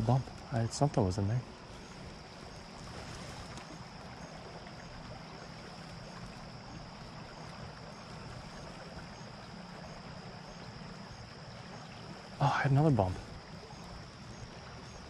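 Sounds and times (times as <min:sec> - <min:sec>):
creek water flowing: 0:00.0 - 0:15.0.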